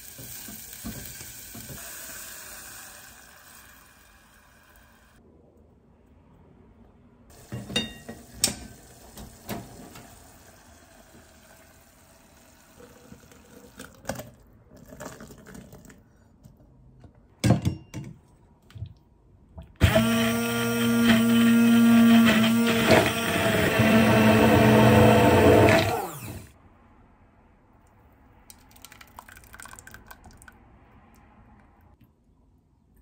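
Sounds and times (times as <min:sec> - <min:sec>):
hand blender running: 0:19.8 - 0:26.5
soup pouring into beaker: 0:28.5 - 0:30.6.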